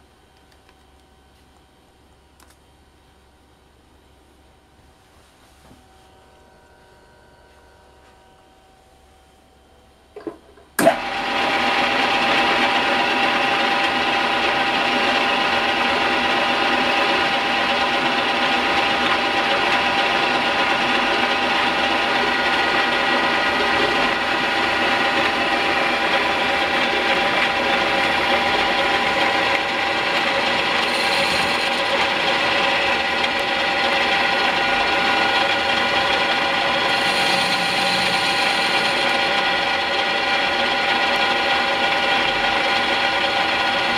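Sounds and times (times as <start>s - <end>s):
lathe running with whine: 10.1s - 43.9s
lathe starting knock: 10.2s - 11.2s.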